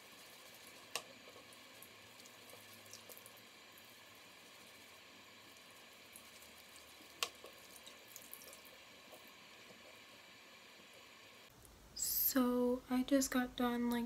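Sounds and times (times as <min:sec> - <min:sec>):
faucet running into sink: 0:00.0 - 0:09.9.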